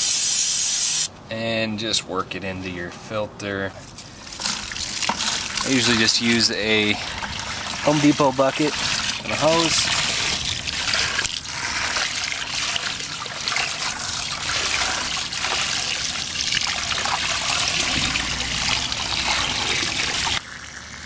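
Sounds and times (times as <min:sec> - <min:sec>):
hose water running into bucket: 0:04.2 - 0:21.0.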